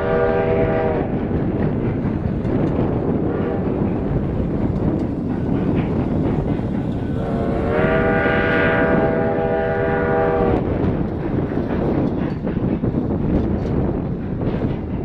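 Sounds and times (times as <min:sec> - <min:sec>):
steam locomotive whistle: 0:00.0 - 0:01.1, 0:07.2 - 0:10.7
wind buffeting microphone: 0:00.0 - 0:15.0.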